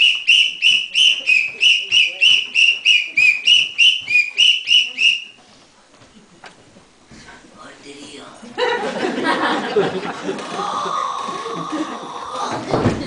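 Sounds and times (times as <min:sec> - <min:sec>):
whistle short blasts: 0:00.0 - 0:05.4.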